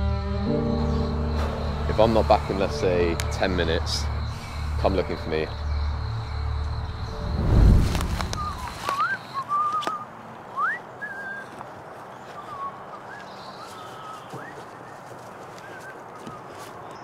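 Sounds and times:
person whistling: 8.2 - 10.0, 10.6 - 11.5.

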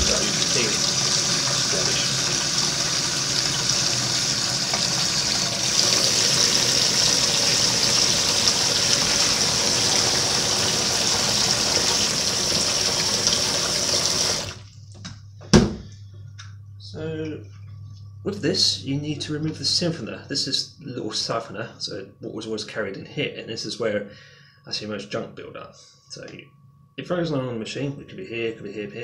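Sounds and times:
tap water pouring into a sink: 0.0 - 14.7.

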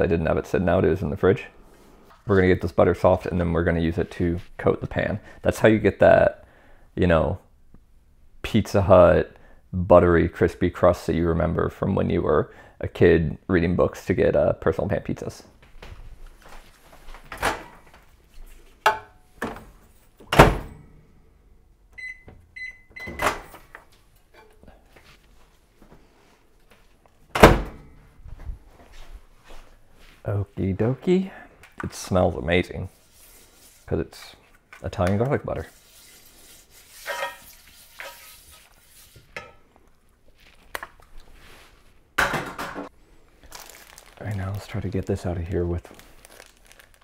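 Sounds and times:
electronic keypad beeps: 22.0 - 23.2
pastry brush scraping skillet: 35.6 - 39.4.

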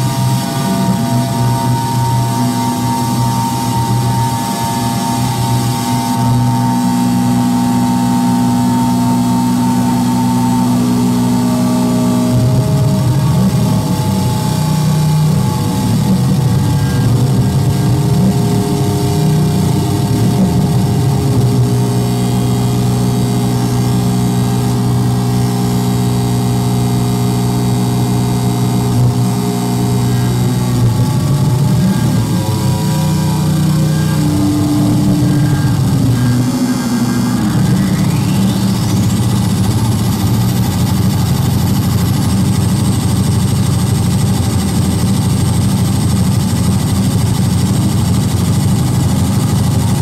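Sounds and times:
electronic noise drone: 0.0 - 50.0.

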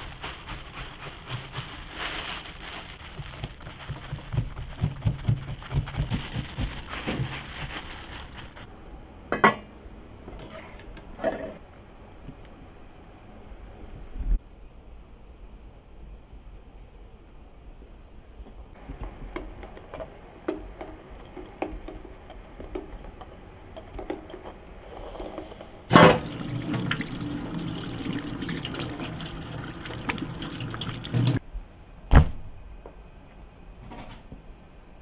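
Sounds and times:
water pouring into a pot: 26.1 - 31.4.

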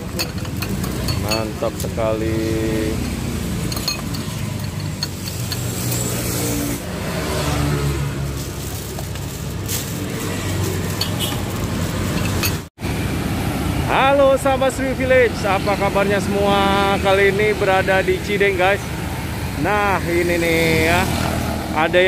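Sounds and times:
utensils clinking against bowls: 0.0 - 6.7, 8.3 - 12.7
vehicle engines passing: 0.0 - 22.0.

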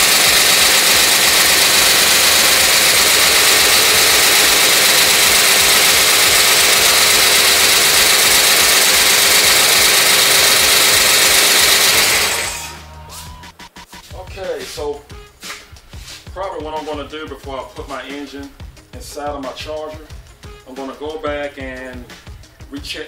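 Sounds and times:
engine idling: 0.0 - 12.9.

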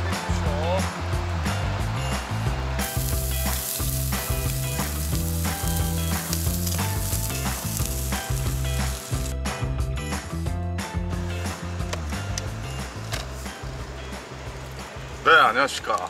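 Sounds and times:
background music: 0.0 - 16.0
fish sizzling on a grill: 2.8 - 9.4, 11.4 - 15.2.

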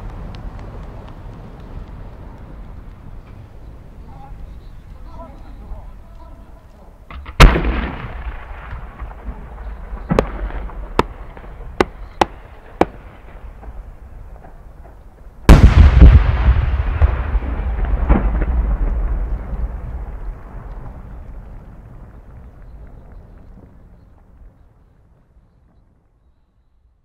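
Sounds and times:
small firework pops: 0.0 - 26.2
firework shell bursting boom: 7.1 - 13.8, 15.5 - 19.7
firework mortar launch boom: 7.1 - 23.8
rumbling echo: 7.1 - 24.9.

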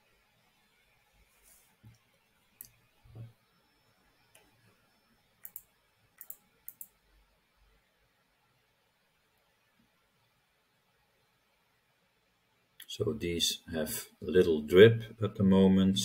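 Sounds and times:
computer mouse clicking: 5.4 - 7.0.

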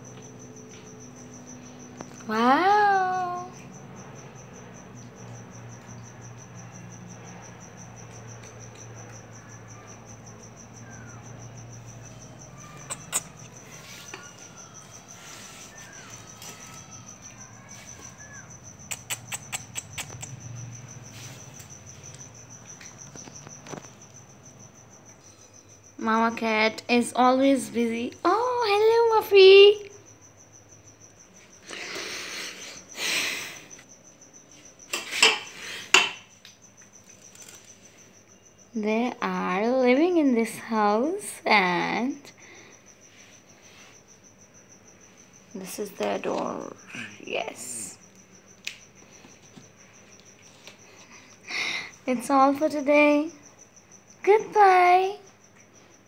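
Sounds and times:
sharp clicks: 18.9 - 20.4.

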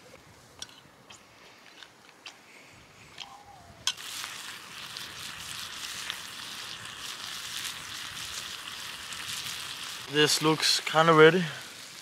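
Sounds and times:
campfire crackling: 0.1 - 12.0
food sizzling in frying pan: 3.9 - 12.0.

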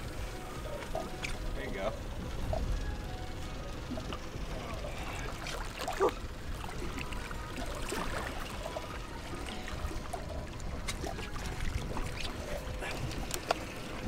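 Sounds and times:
water splashing against hull: 3.4 - 14.0.

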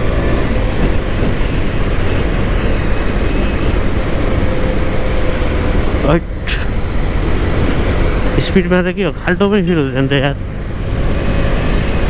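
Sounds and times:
thin high whine: 0.0 - 12.0.

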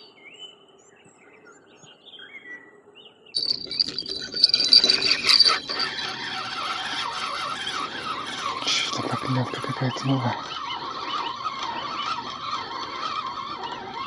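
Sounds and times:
faint bird chirps: 0.0 - 6.8
fishing reel whirring: 3.4 - 14.0
thin high whine: 3.4 - 14.0.

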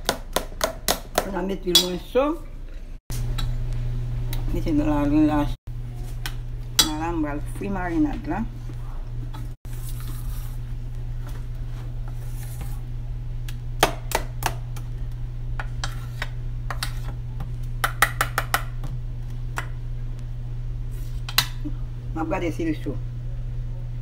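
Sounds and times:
steady low hum: 0.1 - 24.0
spoon clinking on metal bowl: 1.7 - 2.1.

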